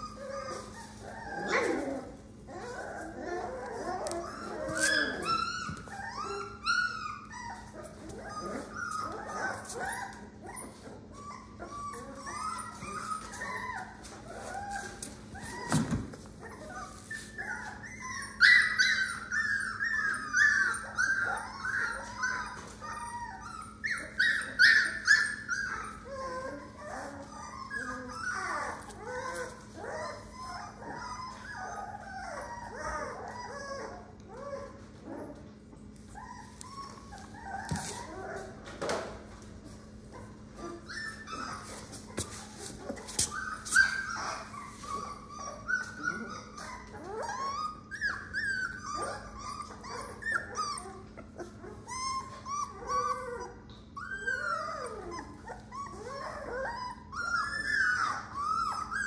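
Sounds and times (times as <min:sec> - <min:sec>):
puppies whimpering and yelping: 0:00.0 - 0:59.0.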